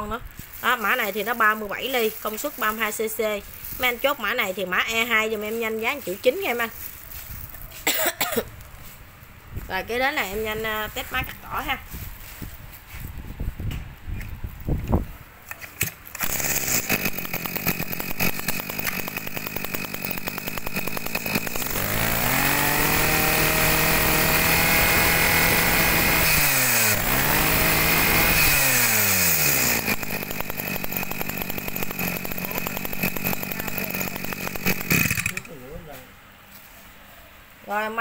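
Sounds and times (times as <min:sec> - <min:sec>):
chainsaw engine idling and revving: 0:00.4 - 0:07.7, 0:15.6 - 0:35.6.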